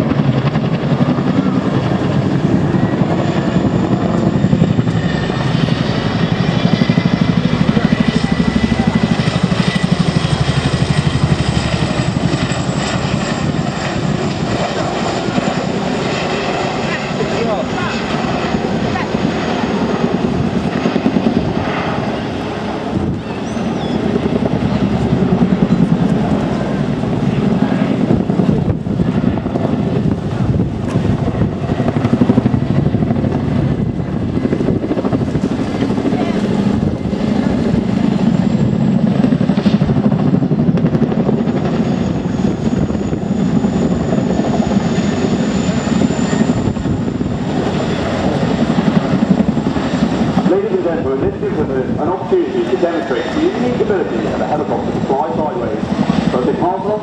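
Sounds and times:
helicopter rotors chopping: 0.0 - 57.0
high turbine whine: 0.0 - 57.0.

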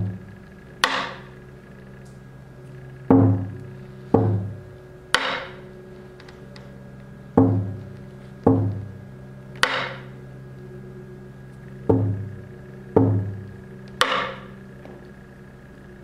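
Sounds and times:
held drone: 0.0 - 16.0
deep percussion strikes: 3.0 - 5.7, 7.3 - 9.0, 11.8 - 14.5.

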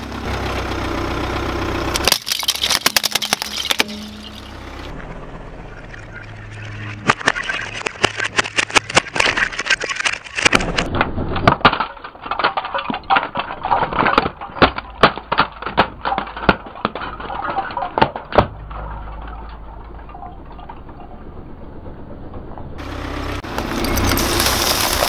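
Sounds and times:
car low rumble: 0.0 - 9.6, 10.2 - 25.0
plastic cracking under car tyre: 7.0 - 20.0.

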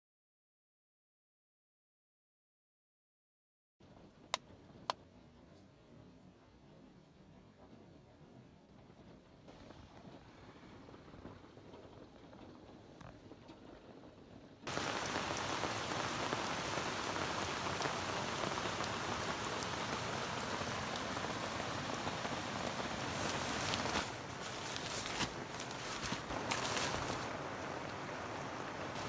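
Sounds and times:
heavy rain pouring: 14.7 - 29.0.

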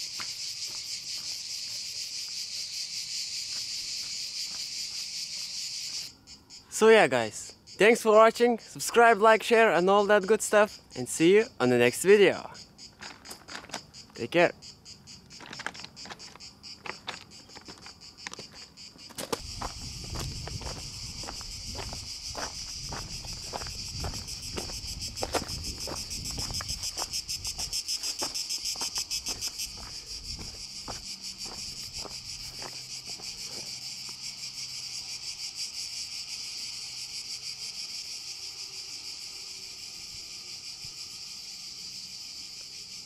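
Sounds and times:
footsteps on stony trail: 0.0 - 1.8, 3.4 - 5.1, 15.2 - 34.3
cicadas buzzing: 0.0 - 43.0.

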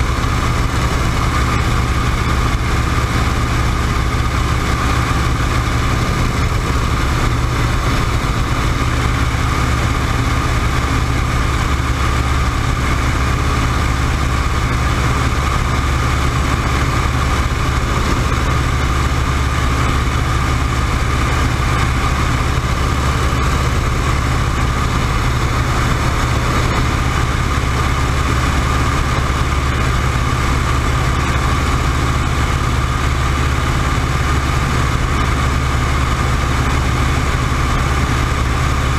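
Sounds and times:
biplane radial engine and propeller: 0.0 - 38.9
wind rush on microphone: 0.0 - 38.9.

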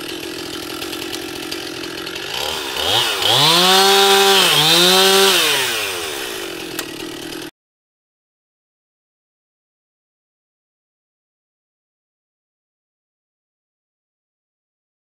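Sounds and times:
chainsaw revving: 0.0 - 7.5.

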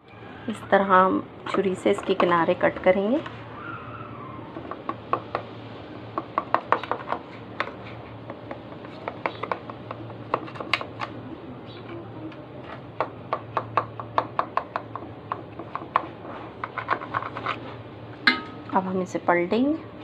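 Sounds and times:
knife scraping metal baking tin: 16.3 - 17.8.

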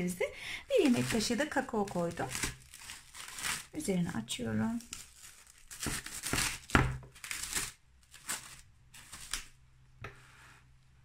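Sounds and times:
cling film crinkling: 0.6 - 3.9, 4.5 - 9.6.

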